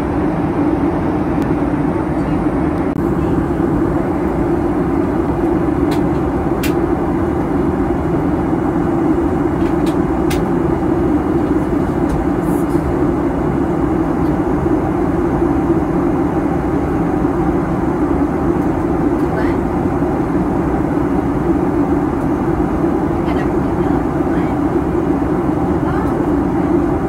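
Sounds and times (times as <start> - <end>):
airplane cabin engine rush: 0.0 - 27.0.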